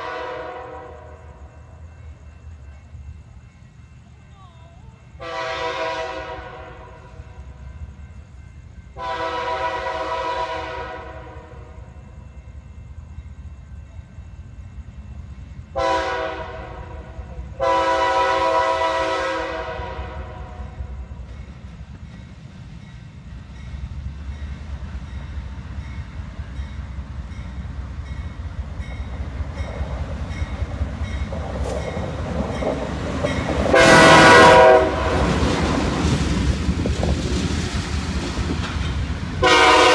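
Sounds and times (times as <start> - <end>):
locomotive chime air horn: 0.0 - 1.8, 4.1 - 7.6, 8.9 - 11.9, 15.7 - 21.0, 33.7 - 35.3, 39.4 - 39.9
locomotive engines rumbling: 0.0 - 39.9.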